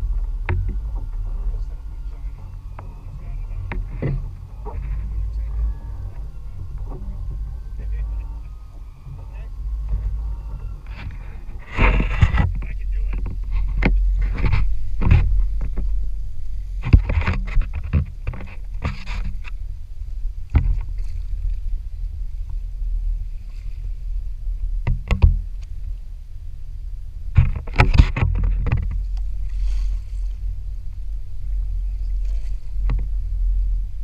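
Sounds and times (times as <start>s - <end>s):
knocks and clatter on boat: 0.0s - 26.0s, 27.0s - 34.0s
boat engine rumble: 0.0s - 34.0s.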